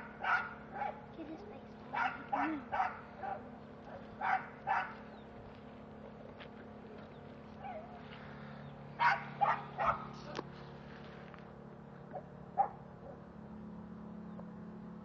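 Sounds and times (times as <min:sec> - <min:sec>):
dog barking: 0:00.0 - 0:01.0, 0:01.9 - 0:05.0, 0:09.0 - 0:10.2, 0:12.1 - 0:13.2.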